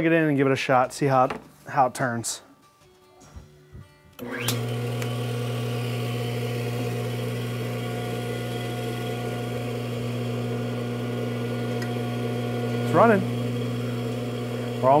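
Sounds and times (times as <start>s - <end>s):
belt grinder motor humming: 4.2s - 15.0s.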